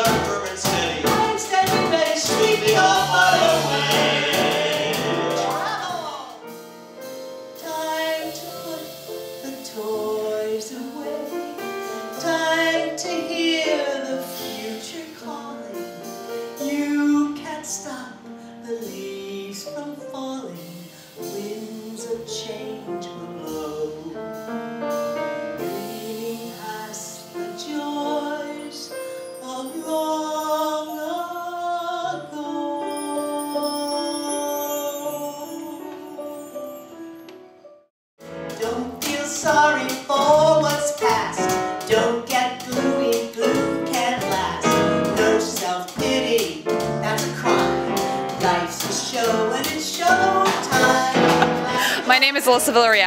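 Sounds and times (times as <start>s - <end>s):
double bass: 0.0s - 6.7s, 38.2s - 52.7s
piano: 0.0s - 53.0s.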